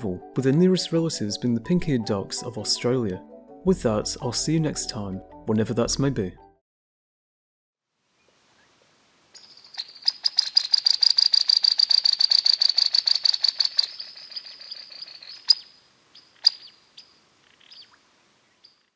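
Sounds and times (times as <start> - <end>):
bird trilling: 9.4 - 18.0.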